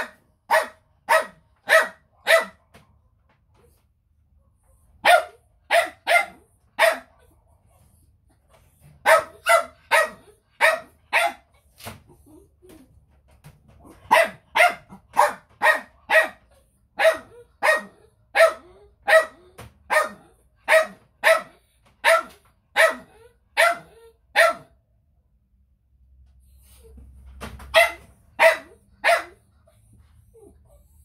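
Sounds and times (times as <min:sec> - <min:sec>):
dog barking: 0:00.0 - 0:02.9, 0:05.0 - 0:07.4, 0:09.0 - 0:11.5, 0:13.9 - 0:24.8, 0:27.7 - 0:29.5.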